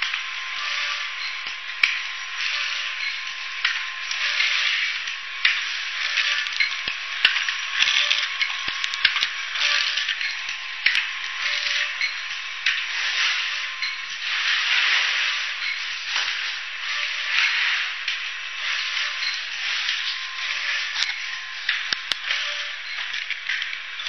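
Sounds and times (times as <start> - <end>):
sharp machine clicks: 0.0 - 14.1
faint steady whine: 0.0 - 24.0
packing machine mechanical hiss: 0.0 - 24.0.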